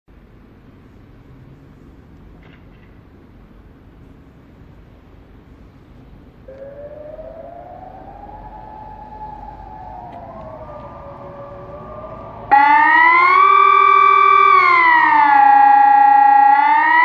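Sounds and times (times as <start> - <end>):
distant sirens rising and falling: 5.3 - 17.0
loud electronic siren wailing: 6.4 - 17.0.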